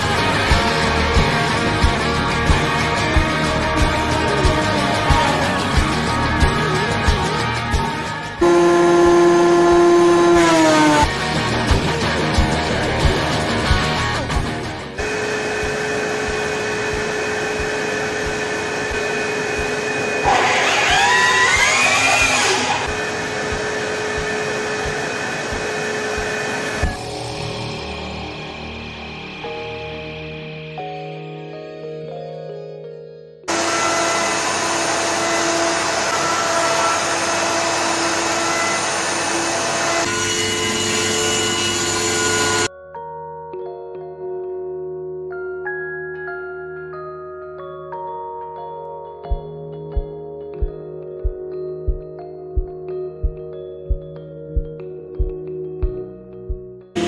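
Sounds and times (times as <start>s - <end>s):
router motor whine: 8.4s - 11.1s, 15.0s - 27.3s, 33.5s - 42.7s
dust vacuum running: 8.4s - 12.9s, 15.0s - 28.8s, 33.5s - 42.7s.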